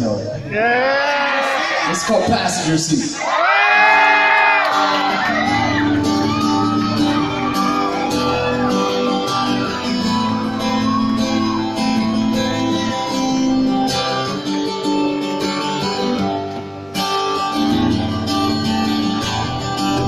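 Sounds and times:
acoustic guitar strumming: 4.7s - 20.0s.

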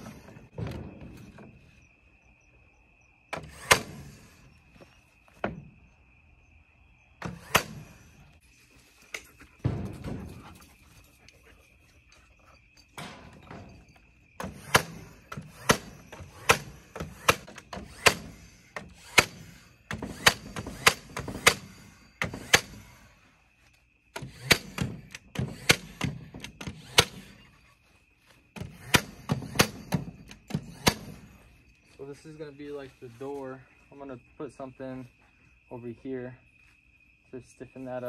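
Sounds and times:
nail gun firing into wood: 3.4s - 4.2s, 7.2s - 8.0s, 14.4s - 23.0s, 24.1s - 27.4s, 28.6s - 31.3s.

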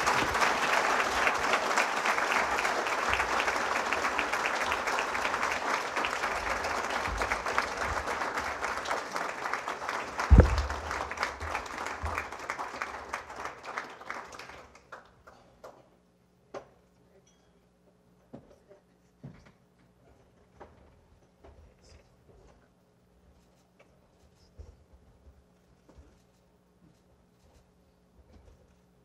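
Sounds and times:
audience applauding: 0.0s - 15.4s
loud thump: 10.3s - 10.8s.

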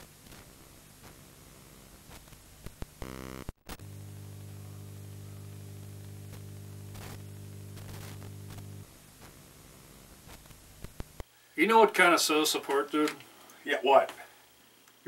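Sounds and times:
low electrical hum: 0.0s - 15.0s
tv static hiss: 0.0s - 15.0s
brief buzz: 3.0s - 8.9s
clicks: 6.0s - 8.8s.

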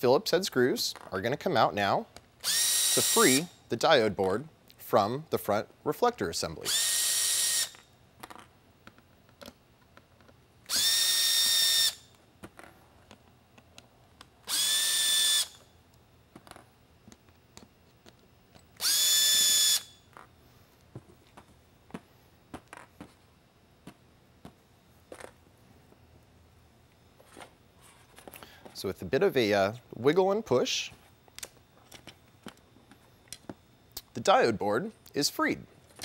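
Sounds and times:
cordless drill whining: 2.4s - 3.5s, 6.6s - 7.8s, 10.7s - 12.1s, 14.5s - 15.6s, 18.8s - 20.0s.

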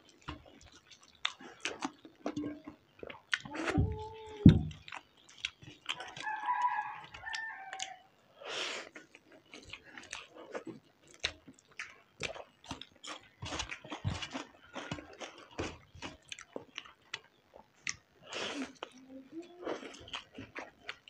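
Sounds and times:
wet chewing: 0.0s - 8.0s, 8.8s - 21.0s
low voiced sound: 3.4s - 4.7s, 18.9s - 19.8s
rooster crowing: 6.0s - 8.1s.

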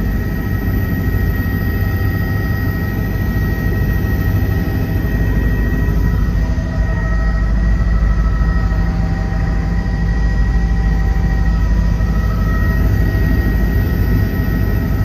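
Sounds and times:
helicopter rotor and engine drone: 0.0s - 15.0s
high whine: 0.0s - 15.0s.

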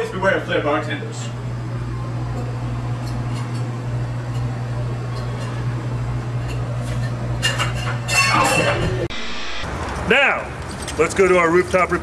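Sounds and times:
low hum: 8.8s - 10.0s.

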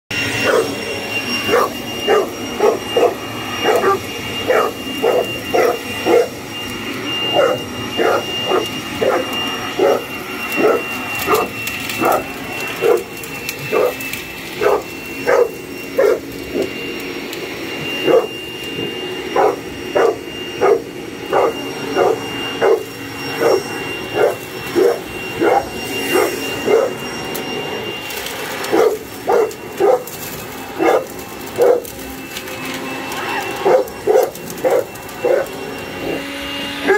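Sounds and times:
leaf blower motor whining: 0.1s - 36.9s
dog barking: 0.4s - 0.8s, 1.4s - 6.4s, 7.3s - 16.7s, 18.0s - 18.4s, 19.3s - 27.0s, 28.7s - 30.2s, 30.8s - 32.0s, 33.3s - 36.9s.

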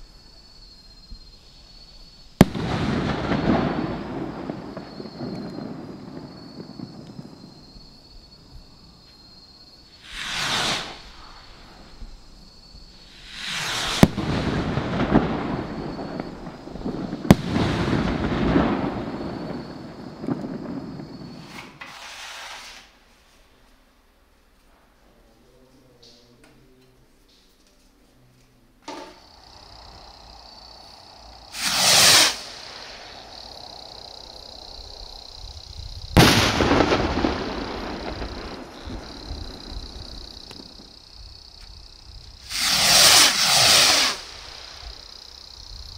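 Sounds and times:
hissing rumbling noise: 2.2s - 23.0s, 28.9s - 45.9s
firework rockets bursting: 2.3s - 8.4s, 9.8s - 23.2s, 28.9s - 45.9s.

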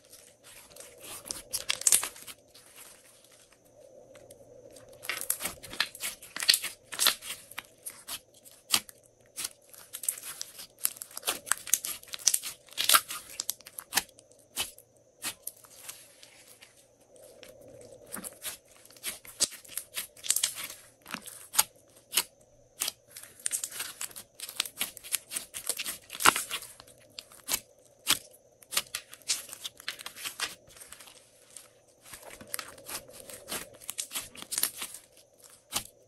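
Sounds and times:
slime popping and crackling: 1.0s - 2.4s, 9.4s - 14.0s.

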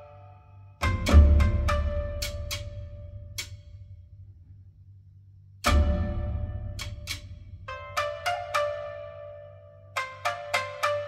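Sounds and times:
loud percussive hit with deep bass: 5.7s - 7.7s.

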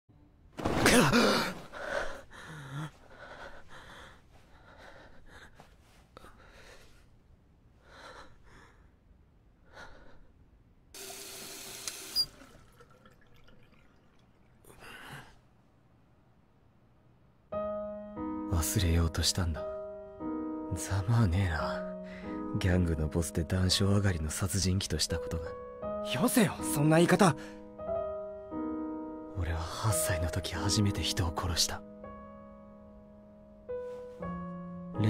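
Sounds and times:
man gasping: 1.0s - 7.0s
heavy uneven breathing: 1.2s - 7.2s.

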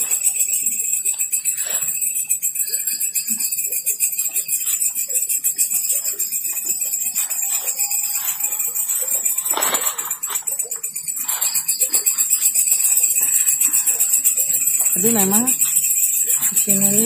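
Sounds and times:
night insects trilling: 0.0s - 17.0s.

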